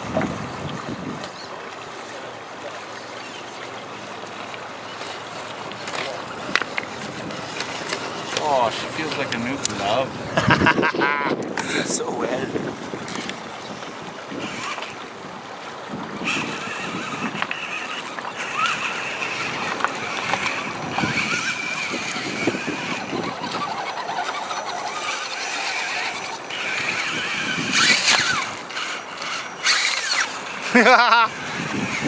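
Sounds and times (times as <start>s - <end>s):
truck splashing through water: 0.0s - 10.3s, 14.2s - 32.0s
water noise: 0.0s - 32.0s
toy truck motor whining: 14.4s - 15.0s, 16.1s - 32.0s.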